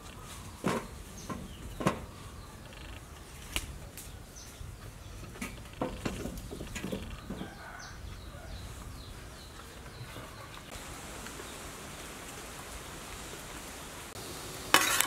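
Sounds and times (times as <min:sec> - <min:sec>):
birds chirping: 0:00.0 - 0:14.2.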